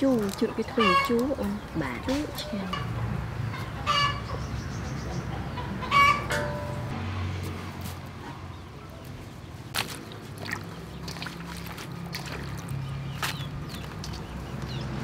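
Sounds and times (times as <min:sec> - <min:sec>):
water splashing and trickling: 0:00.0 - 0:03.4, 0:06.4 - 0:15.0.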